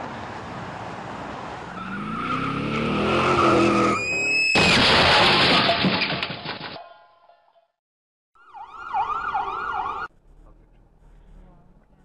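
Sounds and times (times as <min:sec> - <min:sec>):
road noise: 0:00.0 - 0:04.8, 0:08.4 - 0:12.0
tyres squealing in a skid: 0:01.7 - 0:06.2
loud car crash: 0:03.5 - 0:06.8.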